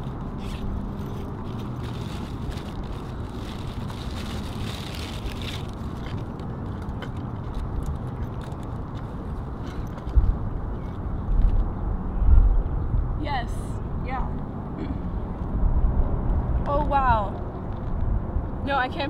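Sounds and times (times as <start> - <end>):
papers being handled: 0.0 - 10.2
low outdoor rumble: 0.0 - 19.0.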